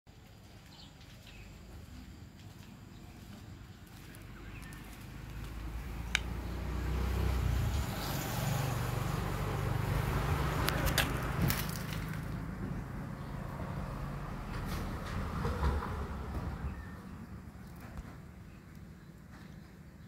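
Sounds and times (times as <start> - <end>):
passing vehicle engine rumble: 3.2 - 18.6
sharp clicks: 6.0 - 6.4.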